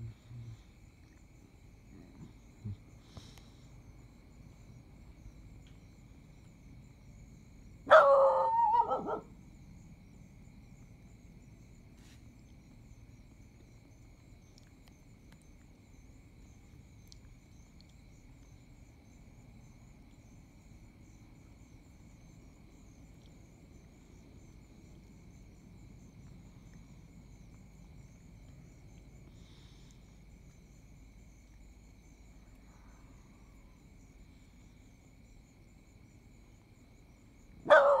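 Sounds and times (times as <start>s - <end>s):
low background rumble: 0.0s - 7.9s
insect chirps: 0.0s - 38.0s
insect trill: 0.0s - 38.0s.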